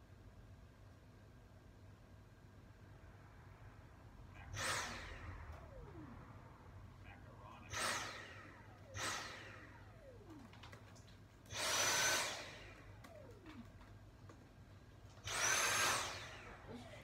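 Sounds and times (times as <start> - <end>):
stick vacuum motor whine: 4.4 - 17.0.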